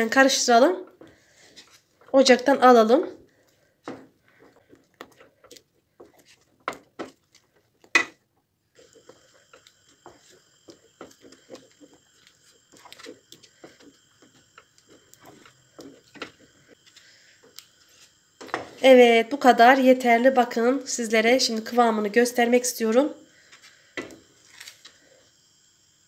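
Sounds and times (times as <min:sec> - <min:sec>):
spoon stirring thick pudding: 0:03.2 - 0:17.0
faint high whine: 0:08.6 - 0:26.0.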